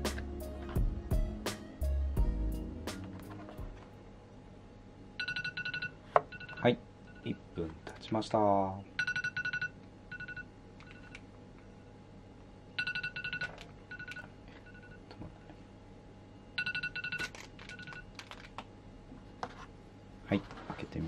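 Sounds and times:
timer alarm beeping: 5.2 - 7.3, 9.0 - 11.1.

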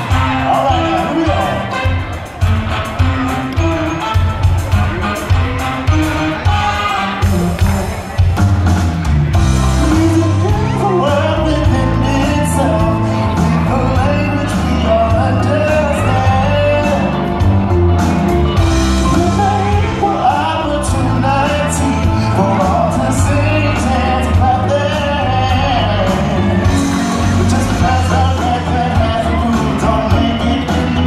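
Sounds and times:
person singing: 0.0 - 2.0, 9.7 - 31.0
band playing rock and soul: 0.0 - 31.0.

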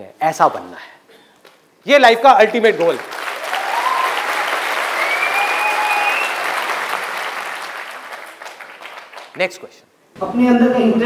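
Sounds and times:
audience applauding: 2.6 - 9.5.

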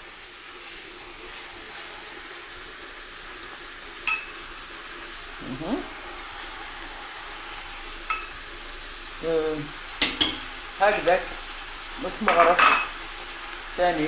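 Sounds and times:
food sizzling in a pot: 0.0 - 14.0
metal spoon clinking glass bowl: 4.1 - 4.3, 12.4 - 12.9.

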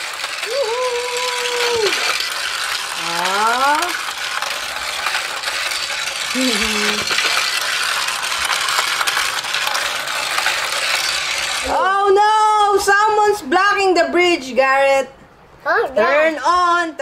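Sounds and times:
toy train rattling on track: 0.0 - 13.4.

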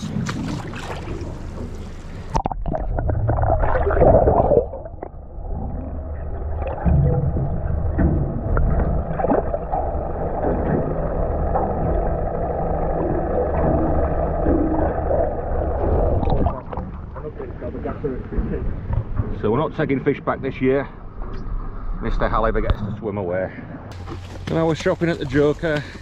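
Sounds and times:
water splashing: 0.0 - 18.8, 23.9 - 26.0
underwater bubbling rumble: 0.0 - 20.0
steady low hum: 0.0 - 26.0.

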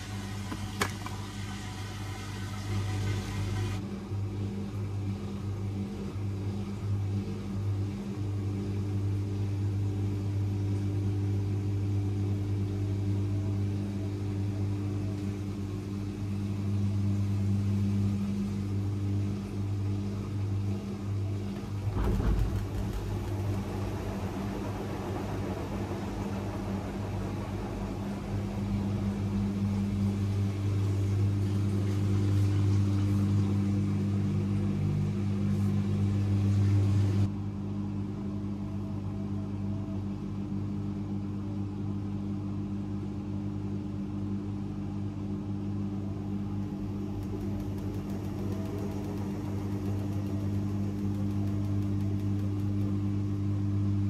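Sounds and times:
washing machine spinning: 0.0 - 54.0
washing machine knock: 21.8 - 25.5.

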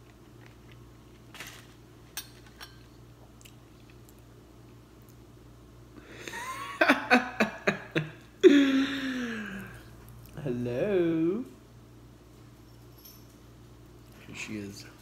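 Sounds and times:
man laughing: 6.1 - 9.6.

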